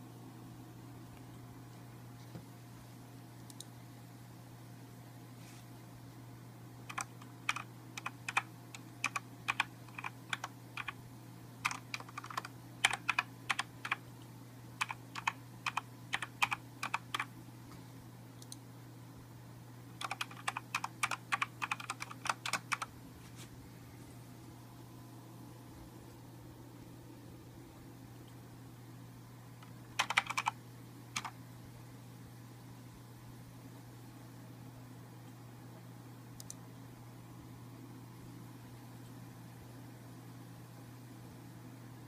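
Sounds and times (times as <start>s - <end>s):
mechanical keyboard keys clicking: 6.9s - 11.0s, 11.6s - 14.0s, 14.8s - 17.3s, 20.0s - 22.9s, 30.0s - 30.6s.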